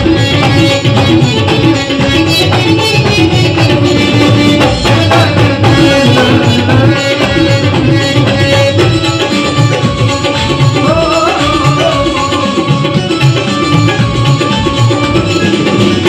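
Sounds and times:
harmonium: 0.0 - 16.0
tabla rhythm: 0.0 - 16.0
man singing long notes: 4.0 - 8.8, 10.8 - 13.0.

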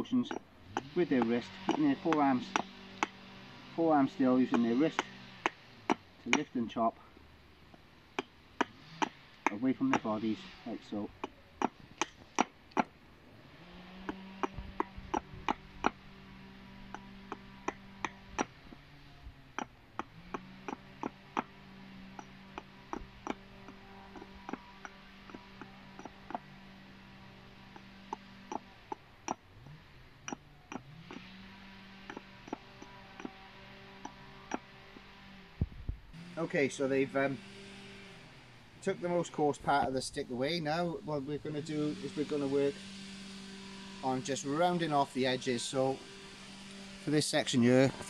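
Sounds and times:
low drone humming: 0.0 - 48.0
axe chopping wood: 0.3 - 3.3, 4.1 - 6.6, 7.7 - 13.0, 13.9 - 19.0, 19.6 - 35.1.

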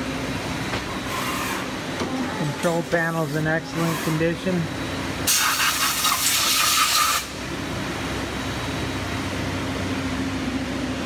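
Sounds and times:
machinery humming: 0.0 - 11.0
loud hiss: 5.3 - 7.3.

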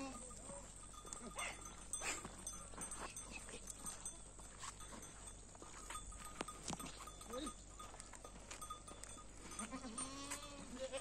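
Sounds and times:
hooves clicking on paved road: 0.0 - 11.0
faint goat bleat: 9.6 - 11.0.

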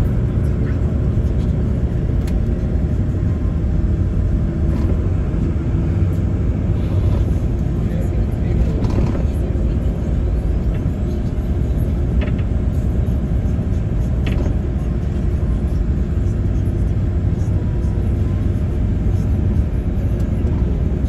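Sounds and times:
diesel engine running: 0.0 - 21.0
road noise: 0.0 - 21.0.

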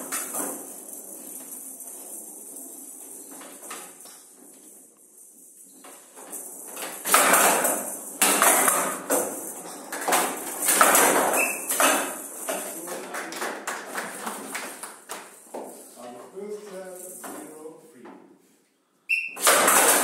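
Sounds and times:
ball clacking off wooden walls: 5.8 - 15.8, 19.4 - 20.0
rattling ball struck with bats: 7.0 - 12.7, 19.4 - 20.0.

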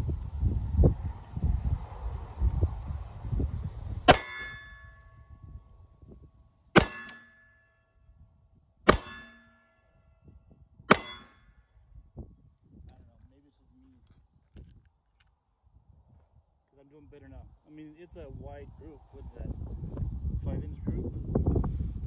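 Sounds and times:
wind rumbling on microphone: 0.0 - 6.7, 9.9 - 22.0
pistol shots: 6.8 - 7.3, 8.9 - 9.5, 10.9 - 11.4.

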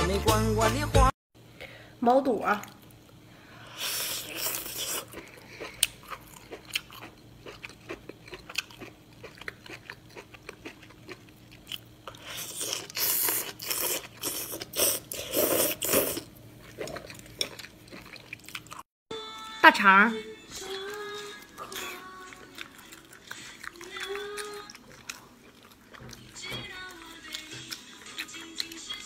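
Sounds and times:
person chewing food: 3.7 - 18.9, 20.6 - 29.0.

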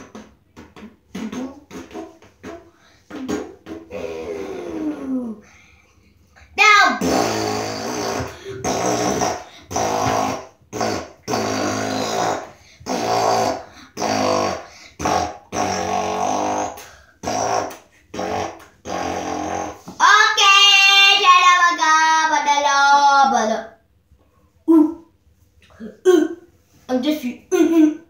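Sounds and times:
child singing: 20.0 - 23.6.

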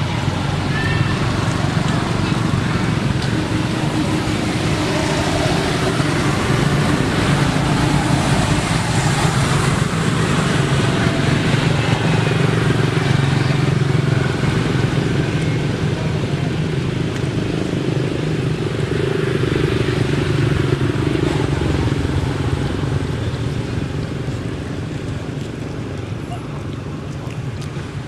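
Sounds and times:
engine droning: 0.0 - 28.0.

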